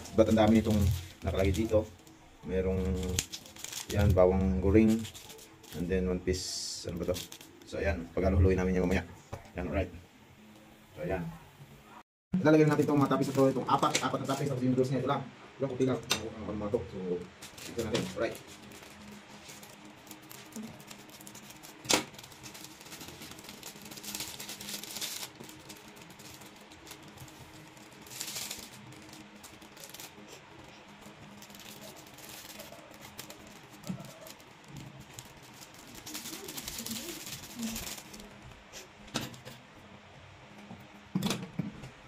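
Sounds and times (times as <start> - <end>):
foil sachets rustling: 0.0 - 9.0, 12.7 - 14.6, 16.9 - 39.4.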